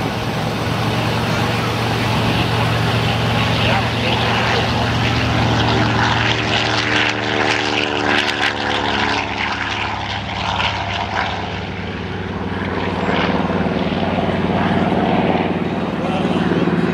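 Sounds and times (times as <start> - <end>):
propeller plane engine taking off: 0.0 - 16.9.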